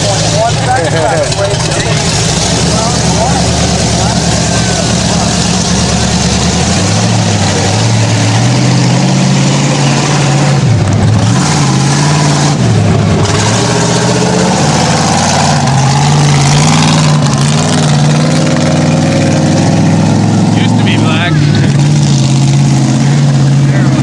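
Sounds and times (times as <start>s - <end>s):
truck engine revving hard: 0.0s - 24.0s.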